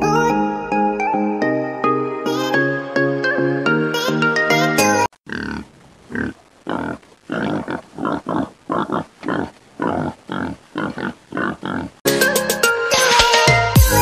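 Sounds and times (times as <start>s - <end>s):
hogs grunting: 5.2s - 12.0s.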